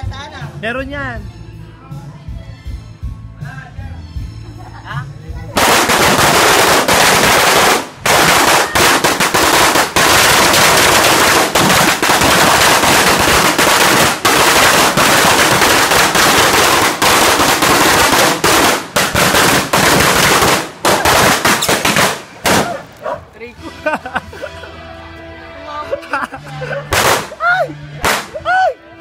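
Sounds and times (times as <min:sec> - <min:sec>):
firecracker string bangs: 0:05.6 - 0:22.8, 0:26.9 - 0:27.4.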